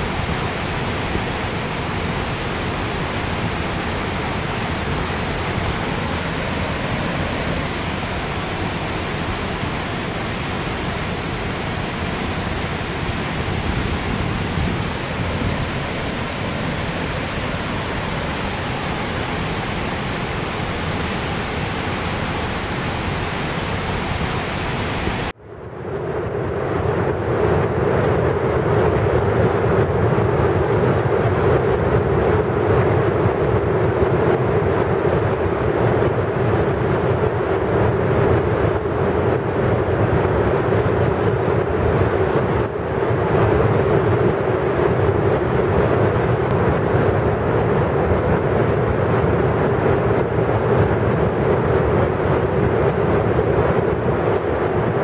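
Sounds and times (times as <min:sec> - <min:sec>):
roar of spillway water: 0:00.0 - 0:25.3.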